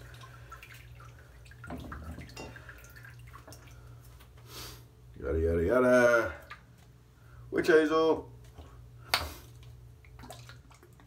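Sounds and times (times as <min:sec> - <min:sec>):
water drips: 0:00.0 - 0:04.4, 0:06.3 - 0:07.0, 0:08.4 - 0:11.0.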